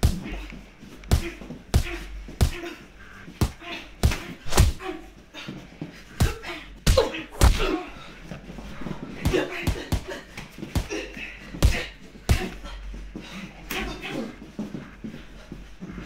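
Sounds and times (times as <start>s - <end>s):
boxing gloves punching: 0.0s - 4.9s, 6.1s - 7.8s, 9.2s - 12.7s
person grunting: 6.2s - 8.0s.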